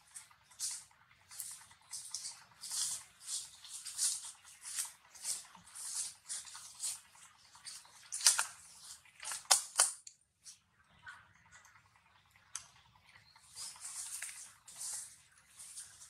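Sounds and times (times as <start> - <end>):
baby monkey suckling: 0.0 - 10.6, 13.4 - 16.0.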